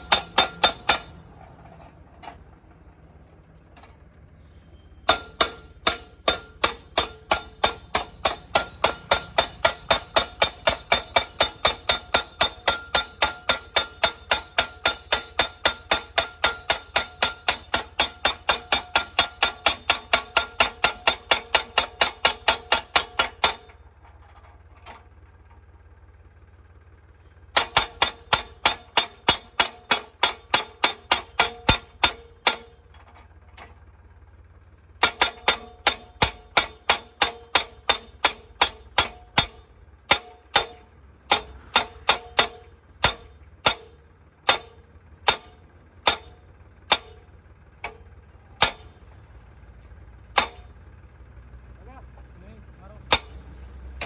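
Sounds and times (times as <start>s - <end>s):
post driver clanging on metal post: 0.0s - 2.4s, 5.0s - 25.1s, 27.5s - 33.8s, 35.0s - 49.0s, 50.3s - 50.8s, 53.0s - 54.0s.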